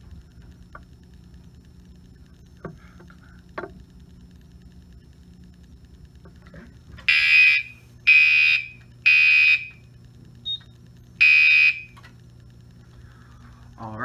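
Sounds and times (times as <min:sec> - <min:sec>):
buzzy fire alarm horn blasts: 0:07.1 - 0:09.9, 0:11.2 - 0:12.0.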